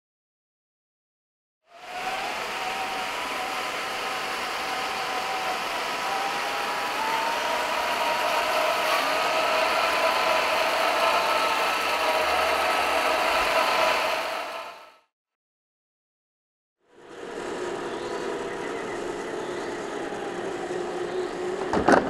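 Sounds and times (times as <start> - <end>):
toy car electric motors whining: 1.7 - 15.0.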